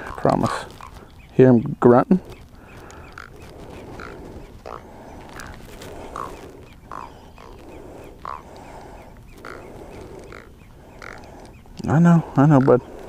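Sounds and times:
catfish grunting croaks: 2.6s - 13.0s.

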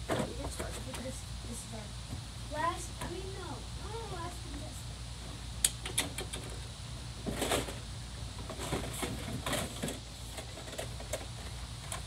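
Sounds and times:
knocks and rustles of handling: 7.2s - 7.8s, 8.4s - 12.0s.

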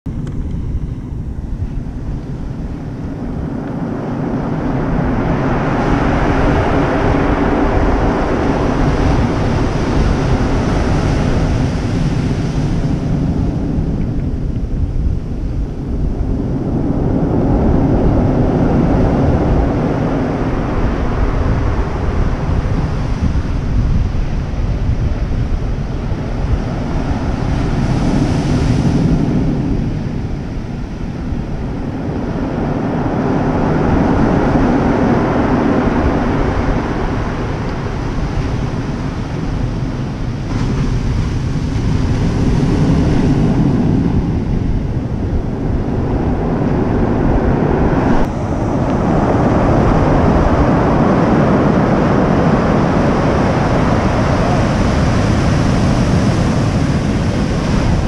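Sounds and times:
wind buffeting microphone: 0.0s - 58.0s
surf breaking on stony shore: 32.0s - 58.0s.

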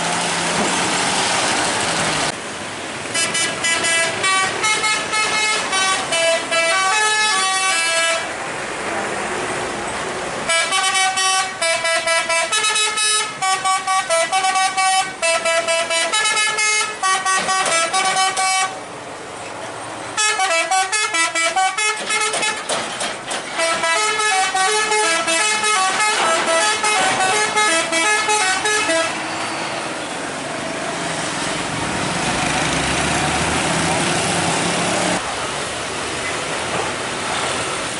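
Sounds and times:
passing traffic: 0.0s - 37.9s
musical air horns playing a tune: 3.2s - 8.3s, 10.5s - 18.8s, 20.2s - 22.7s, 23.6s - 29.6s.

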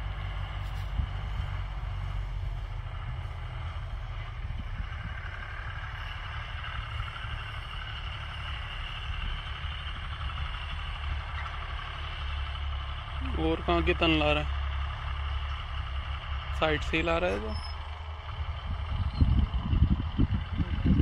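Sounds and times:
distant tractor engine rumble: 0.0s - 21.0s.

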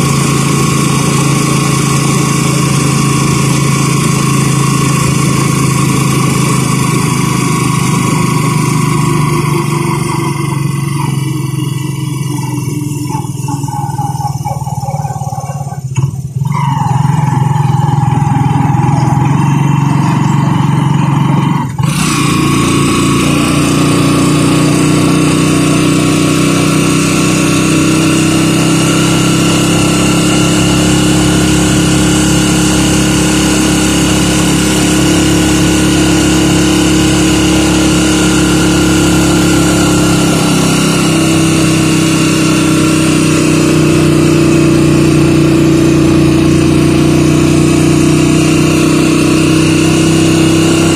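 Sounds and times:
motorcycle engine running: 0.0s - 50.9s.

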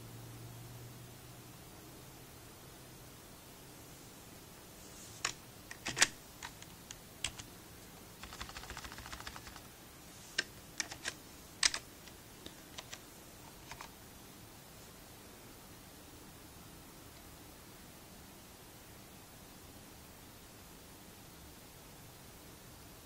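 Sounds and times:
keyboard keys clicking: 5.2s - 7.5s, 8.2s - 9.7s, 10.4s - 13.9s.

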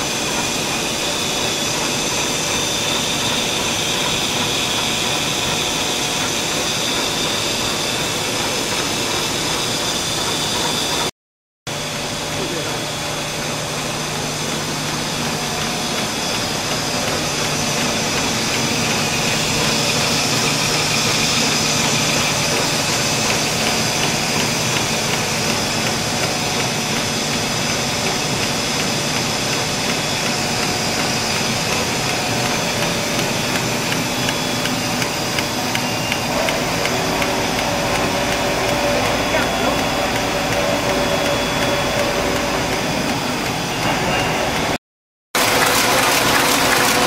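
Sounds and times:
held machine tones: 14.3s - 44.8s.

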